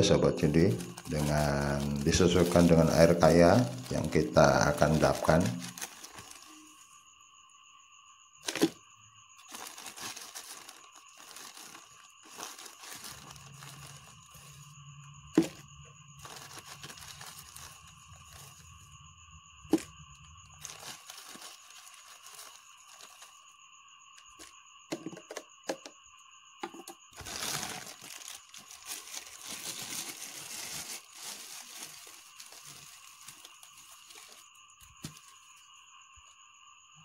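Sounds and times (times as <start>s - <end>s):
plastic bag crinkling: 0.0s - 6.9s, 8.4s - 8.8s, 9.4s - 18.9s, 19.6s - 23.4s, 27.2s - 35.5s.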